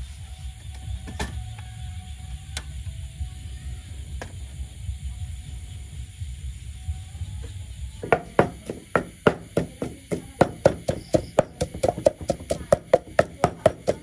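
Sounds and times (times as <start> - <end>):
wooden pestle pounding in mortar: 8.0 - 14.0.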